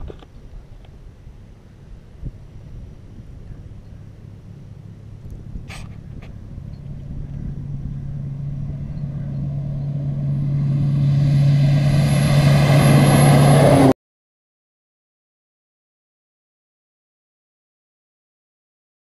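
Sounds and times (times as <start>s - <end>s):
propeller plane approaching: 0.4s - 14.0s
high turbine whine: 1.0s - 14.0s.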